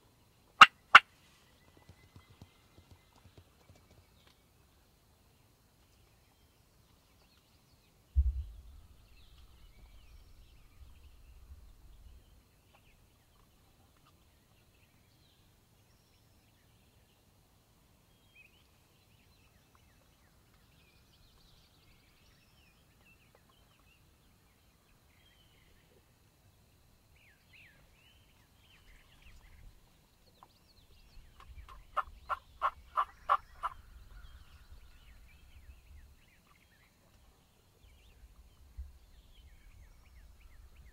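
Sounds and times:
faint songbird chirps: 0.0s - 40.9s
turkey gobbling: 0.6s - 1.1s, 31.7s - 33.8s
sharp low thump: 8.2s - 10.0s.

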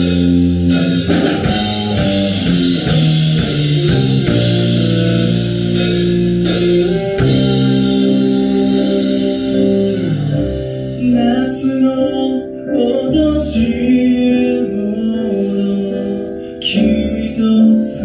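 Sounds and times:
live band playing: 0.0s - 12.2s
man singing: 11.0s - 18.0s.

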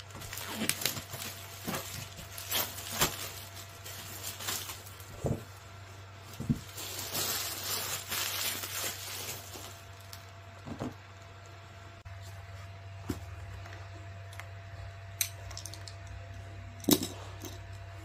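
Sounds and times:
plastic wrap crinkling: 0.0s - 5.5s, 6.2s - 10.6s.

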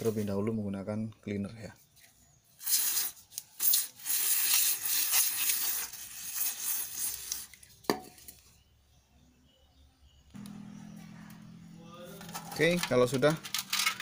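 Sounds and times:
aerosol spray hissing: 2.6s - 7.5s.

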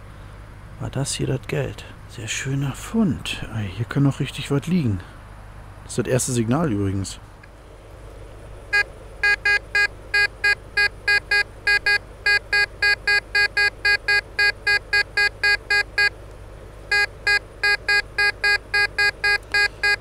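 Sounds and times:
metal detector beeping: 8.7s - 16.1s, 16.9s - 20.0s.

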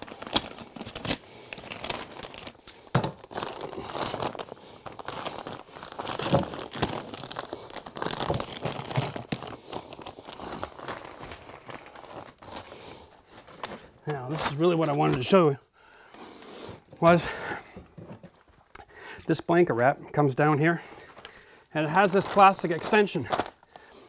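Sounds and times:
plastic wrap crinkling: 0.0s - 16.1s, 20.9s - 24.0s.

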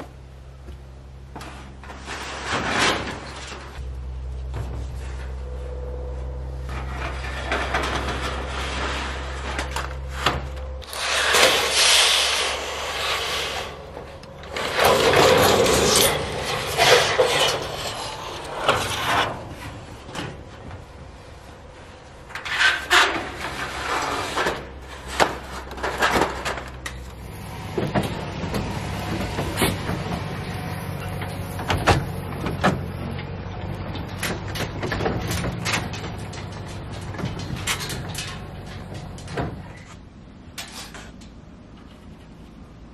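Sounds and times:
low steady hum: 0.0s - 42.9s
metal sheets scraping and rattling: 1.4s - 3.8s, 6.6s - 32.9s, 33.9s - 42.3s
metal clanks and knocks: 6.6s - 11.9s, 13.6s - 21.2s, 22.2s - 42.1s.

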